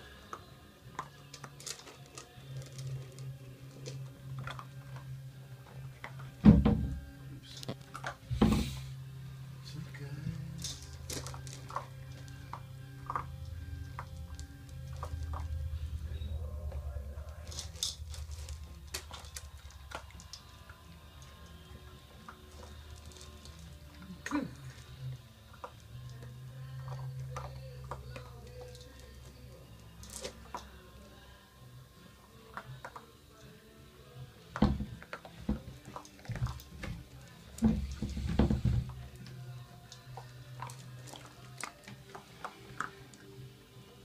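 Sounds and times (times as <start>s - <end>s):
puppies crunching kibble: 0.0s - 6.4s, 7.0s - 44.0s
steady low hum: 2.3s - 34.4s.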